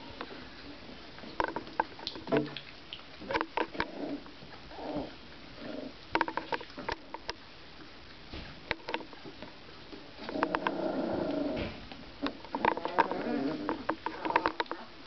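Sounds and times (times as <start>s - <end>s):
puppies squeaking and grunting: 10.2s - 15.0s.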